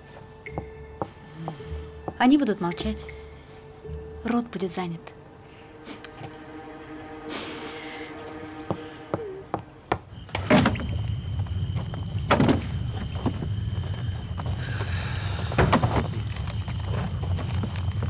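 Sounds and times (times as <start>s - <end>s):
soft orchestral film music: 0.0s - 18.0s.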